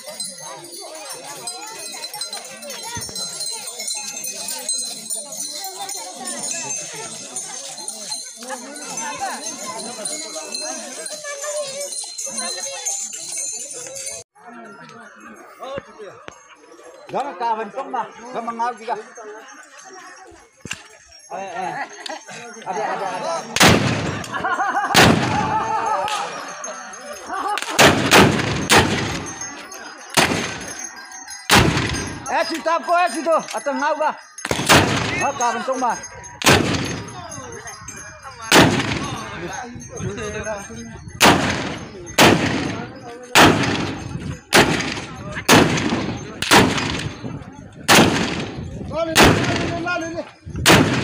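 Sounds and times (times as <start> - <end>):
men shouting and chanting: 21.1 - 41.1
loud gunshots: 23.6 - 24.3, 24.9 - 25.5, 27.6 - 29.3, 30.2 - 30.7, 31.5 - 32.2, 34.5 - 35.2, 36.4 - 37.0, 38.5 - 39.1, 41.2 - 42.8, 43.4 - 47.2, 47.9 - 48.6, 49.2 - 49.8, 50.6 - 51.0.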